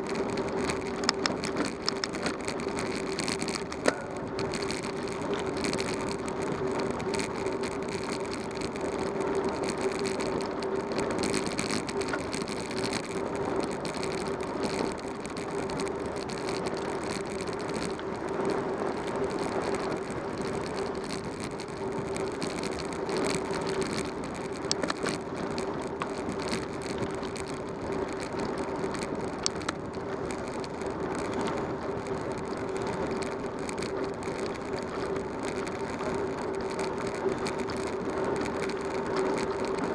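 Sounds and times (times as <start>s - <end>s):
bicycle tyres rolling on road: 0.0s - 39.9s
light clicks and rattles: 0.0s - 39.9s.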